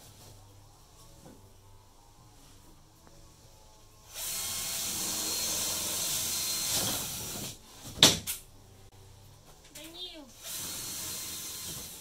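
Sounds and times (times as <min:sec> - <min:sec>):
cordless drill running: 0:04.1 - 0:07.6, 0:10.3 - 0:12.0.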